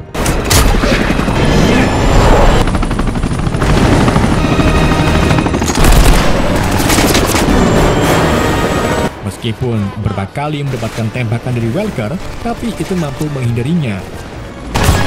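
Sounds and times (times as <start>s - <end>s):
helicopters flying close by: 0.0s - 9.2s.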